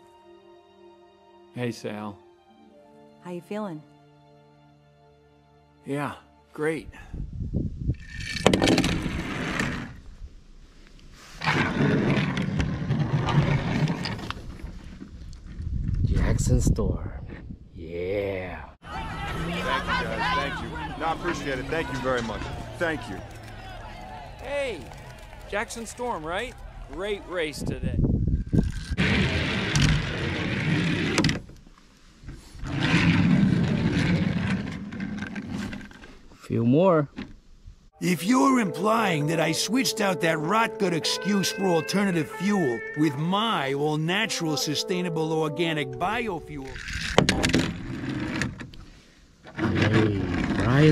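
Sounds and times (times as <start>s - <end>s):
toy car rolling with a rumble: 8.0s - 10.0s, 11.4s - 14.9s, 28.6s - 31.5s, 32.6s - 36.0s, 49.5s - 50.9s.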